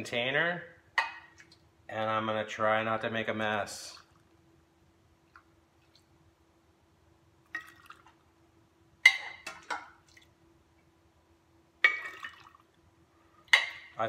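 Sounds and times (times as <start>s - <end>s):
liquid sloshing and dripping: 1.0s - 1.7s, 3.8s - 4.4s, 5.3s - 6.2s, 7.4s - 8.3s, 9.0s - 10.4s, 11.8s - 12.8s.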